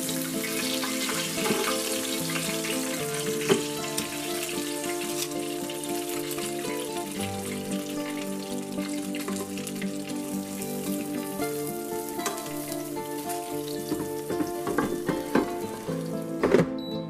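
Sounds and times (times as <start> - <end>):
meat sizzling and crackling: 0.0 - 16.5
background music: 0.0 - 17.0
basket knocking: 13.8 - 15.8, 16.4 - 16.9.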